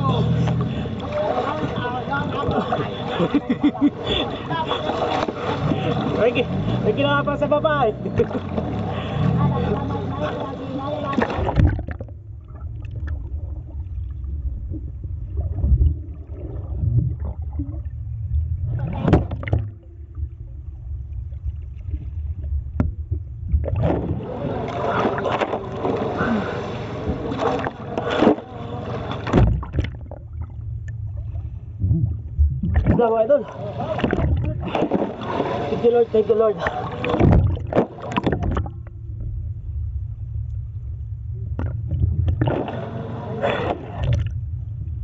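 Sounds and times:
water splashing: 0.0s - 39.4s, 41.4s - 45.0s
low rumble: 0.0s - 45.0s
water sloshing and gurgling: 0.0s - 45.0s.

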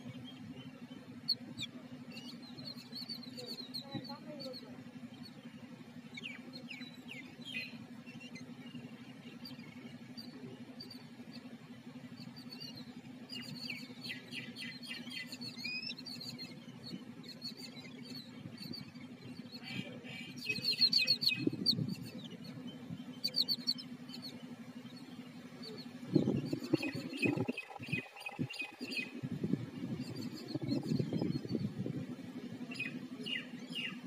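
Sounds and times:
birds chattering harshly: 0.0s - 34.0s
steady low hum: 0.0s - 34.0s
low rumbling bumps: 26.0s - 32.7s.

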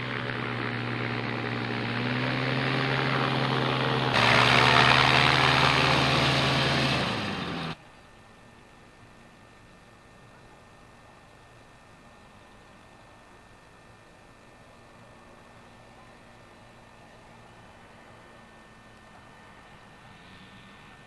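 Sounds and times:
aircraft engine and propeller drone: 0.0s - 7.8s.

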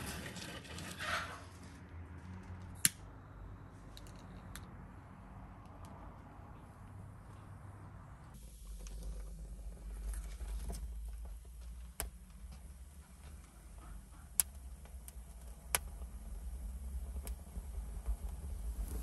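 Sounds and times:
fire rumbling low: 0.0s - 19.0s
twigs crackling in fire: 8.6s - 19.0s.

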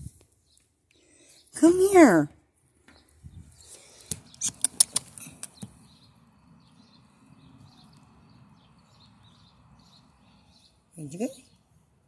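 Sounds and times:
sharp clicks and taps: 4.0s - 5.8s.

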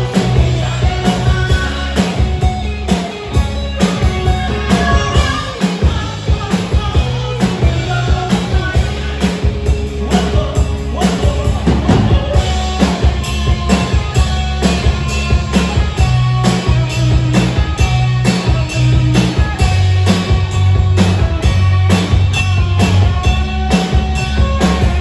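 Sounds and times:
man singing: 0.0s - 16.8s
drum kit beat: 0.0s - 25.0s
electric guitars: 0.0s - 25.0s.

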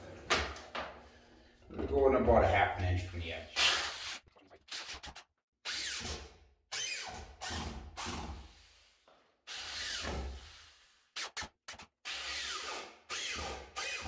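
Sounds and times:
electric drill driving screws: 5.7s - 7.8s, 12.1s - 14.0s.

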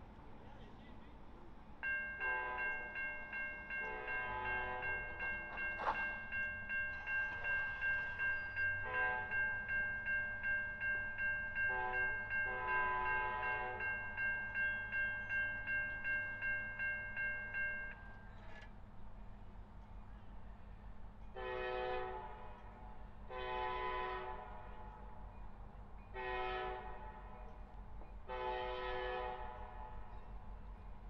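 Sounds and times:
crossing warning bell ringing: 1.8s - 18.6s
train horn blasts: 2.2s - 2.9s, 3.8s - 5.0s, 8.8s - 9.4s, 11.7s - 13.8s, 21.3s - 24.9s, 26.2s - 27.4s, 28.3s - 30.1s.

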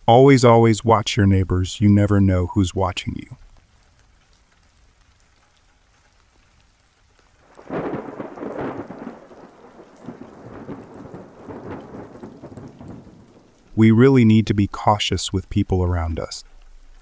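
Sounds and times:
faint rain: 0.0s - 17.0s
thunder rolling and rumbling: 7.4s - 14.3s.

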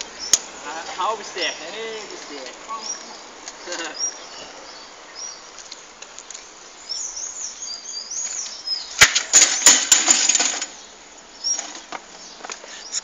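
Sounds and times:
birds chirping: 0.0s - 13.0s
bicycle crashing onto asphalt: 9.0s - 10.8s.

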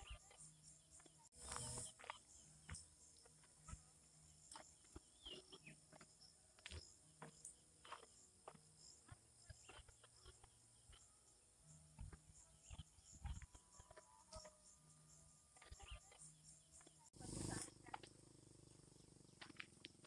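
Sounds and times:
high insect hum: 0.0s - 20.0s
footsteps on dirt path: 1.0s - 3.8s, 4.5s - 10.1s.

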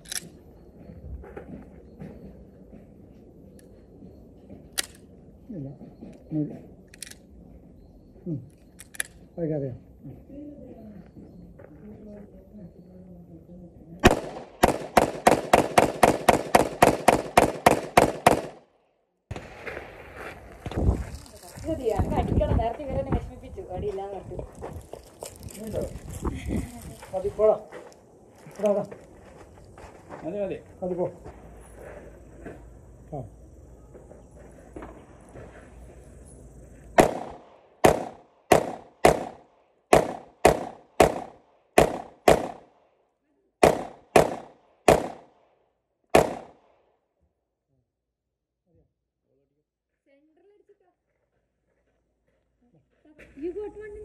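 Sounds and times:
pistol shots with echo: 14.0s - 18.7s, 37.0s - 42.8s, 43.6s - 45.4s, 46.1s - 46.7s.

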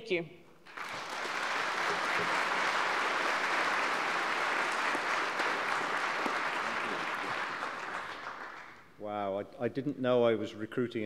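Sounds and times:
audience applauding: 0.6s - 9.0s.

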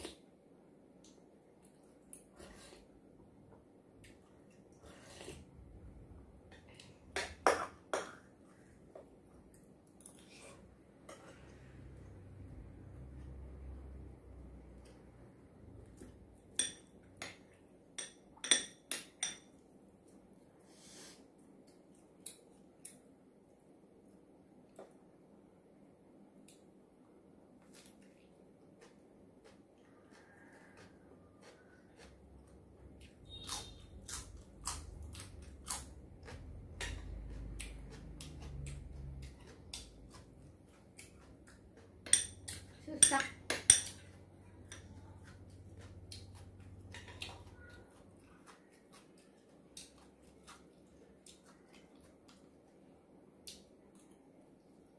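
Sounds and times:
metal spoon clinking on bowls: 16.5s - 17.4s, 18.0s - 19.6s, 42.0s - 44.9s
crisp crunching of chewing: 28.8s - 42.0s.

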